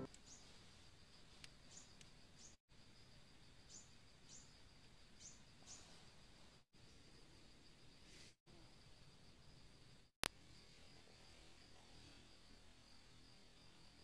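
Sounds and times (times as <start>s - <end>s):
insect drone: 0.0s - 14.0s
bird chirps: 0.1s - 0.5s, 1.7s - 2.6s, 3.6s - 4.5s, 5.2s - 6.0s.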